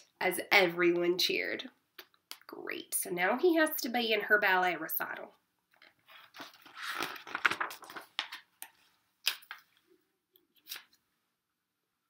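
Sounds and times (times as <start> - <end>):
paper pages rustling: 5.8 - 9.8.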